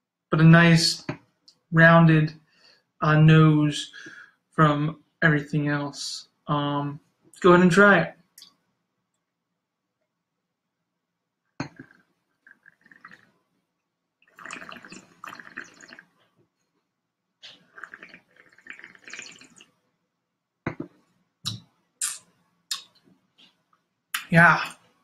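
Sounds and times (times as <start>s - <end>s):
person slurping wine: 14.4s - 16.0s, 17.4s - 19.6s.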